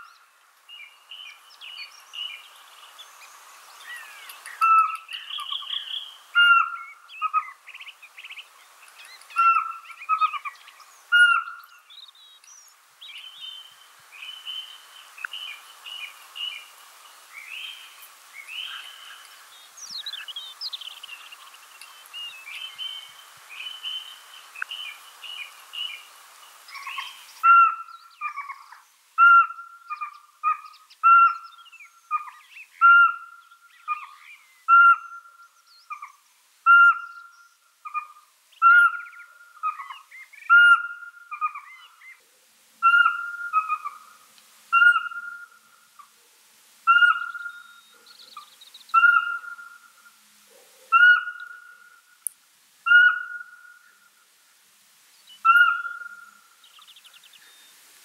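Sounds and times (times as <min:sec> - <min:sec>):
owl whistled calls: 0:04.6 - 0:07.6, 0:09.3 - 0:10.5, 0:11.1 - 0:11.6, 0:26.8 - 0:28.6, 0:29.2 - 0:42.2, 0:42.8 - 0:45.7, 0:46.9 - 0:48.1, 0:48.9 - 0:50.1, 0:50.9 - 0:52.1, 0:52.8 - 0:54.0, 0:55.4 - 0:56.4.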